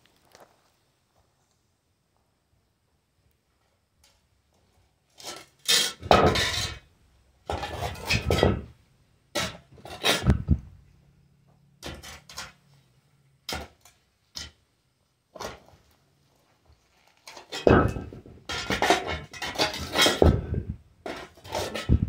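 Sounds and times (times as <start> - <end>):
metal shovel scraping dirt: 5.1 - 6.9, 7.5 - 10.7, 11.8 - 12.9, 16.9 - 22.0.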